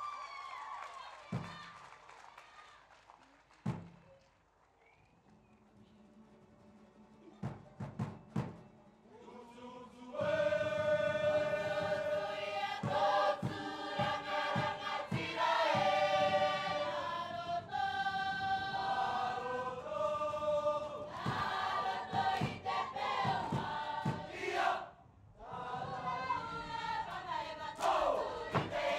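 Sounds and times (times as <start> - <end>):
sharp drum beats: 1.4 - 1.7, 3.7 - 4.0, 7.4 - 8.7, 10.2 - 24.7, 27.8 - 28.9
choir singing: 9.1 - 28.9.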